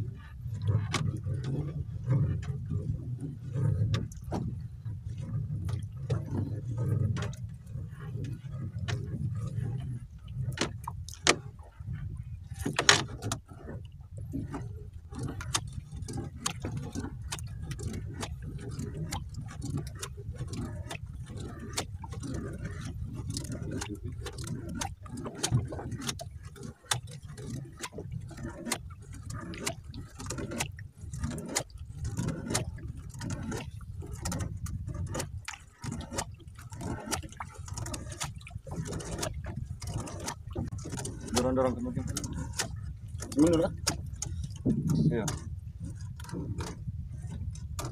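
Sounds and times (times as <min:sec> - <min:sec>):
steady low rumble: 0:00.0 - 0:12.7
fishing line hauling clicks and knocks: 0:00.0 - 0:47.9.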